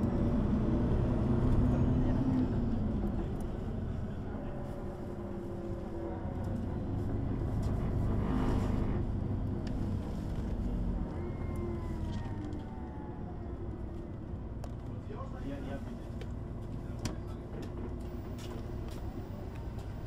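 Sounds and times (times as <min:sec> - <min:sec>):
bus diesel engine running: 0:00.0 - 0:20.0.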